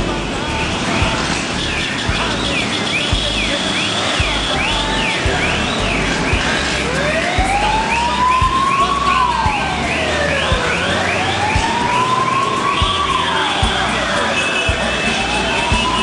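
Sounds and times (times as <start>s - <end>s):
siren wailing: 1.0s - 16.0s
siren yelping: 1.4s - 16.0s.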